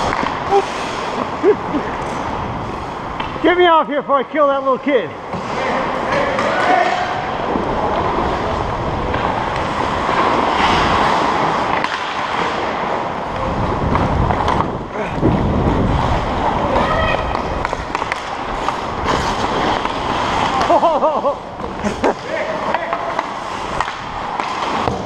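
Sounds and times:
skate blades scraping ice: 0:00.0 - 0:03.6, 0:04.4 - 0:25.0
wind on microphone: 0:13.3 - 0:17.9.

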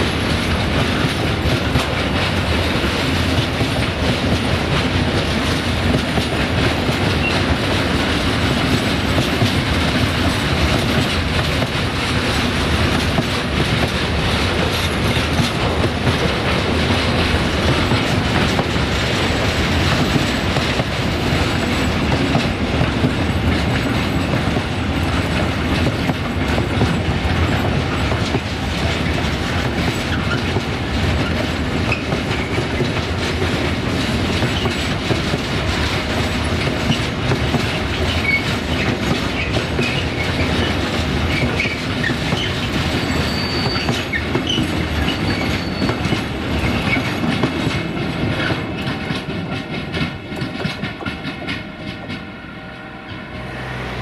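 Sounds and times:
train wheels clacking over rail joints: 0:00.0 - 0:52.3
high wheel squeals: 0:38.0 - 0:40.6, 0:41.3 - 0:47.2.

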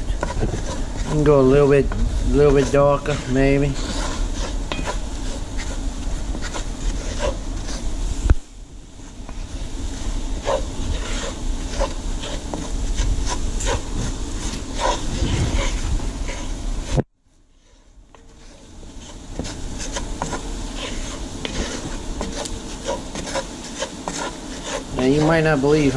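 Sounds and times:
spoon scraping pot bottom: 0:01.9 - 0:07.8.

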